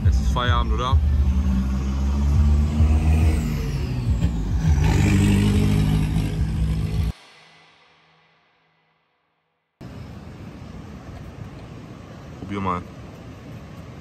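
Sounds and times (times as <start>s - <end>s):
motor vehicle engine running: 0.0s - 7.2s.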